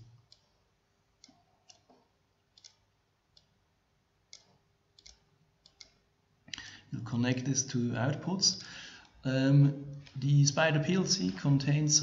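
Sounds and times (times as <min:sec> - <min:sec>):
faint computer mouse clicks: 0:01.2 - 0:03.5, 0:04.3 - 0:06.7.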